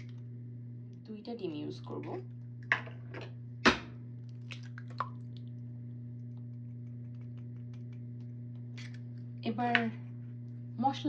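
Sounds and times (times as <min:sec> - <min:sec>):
steady low hum: 0:00.0 - 0:11.0
egg cracking tap: 0:06.2 - 0:08.8.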